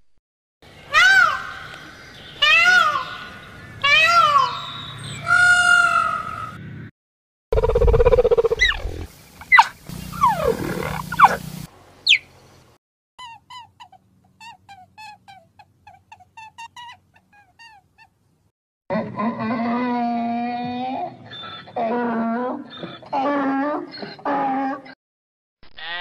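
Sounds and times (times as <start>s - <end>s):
cheetah chirping: 7.6s - 11.4s, 12.0s - 12.3s
loud low animal sound: 7.6s - 11.5s.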